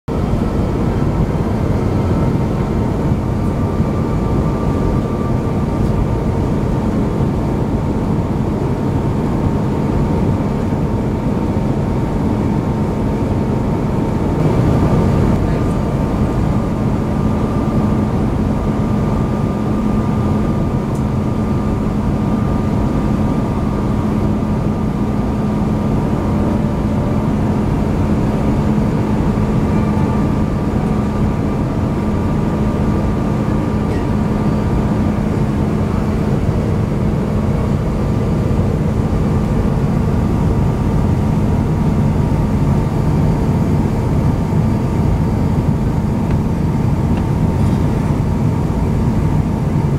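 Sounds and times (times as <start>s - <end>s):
engine drone: 0.1s - 49.9s
airflow rush: 10.8s - 49.9s
faint high tone: 29.6s - 30.3s.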